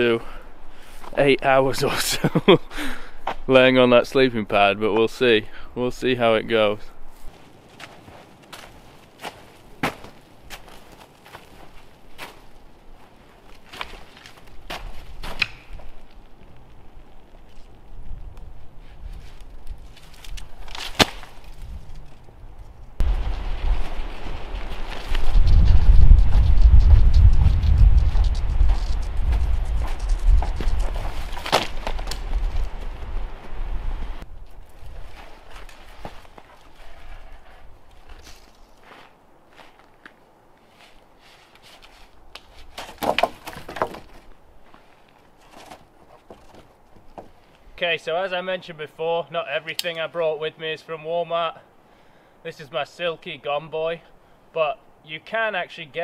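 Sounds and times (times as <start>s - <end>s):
footsteps on snow: 7.1s - 18.1s, 23.0s - 42.8s
wind rumbling on microphone: 21.4s - 35.6s
tent rainfly flapping: 23.0s - 39.0s
branch knocking and scraping: 41.8s - 44.2s.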